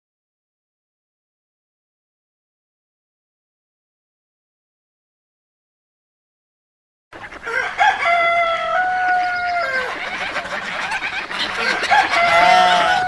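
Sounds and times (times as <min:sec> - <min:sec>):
rooster crowing: 0:07.4 - 0:13.0.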